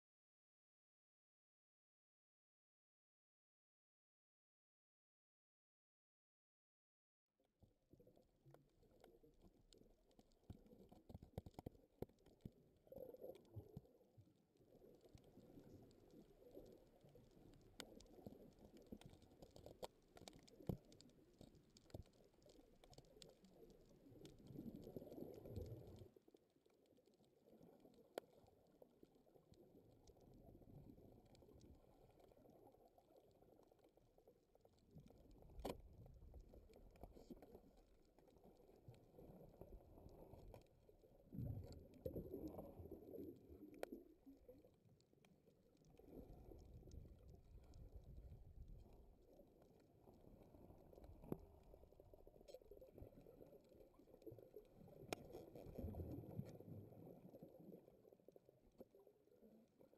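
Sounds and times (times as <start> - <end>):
muffled underwater rumble: 7.6 - 59.9
sharp clicks and crackles: 8.5 - 13.9, 14.7 - 29.2, 34.6 - 40.8.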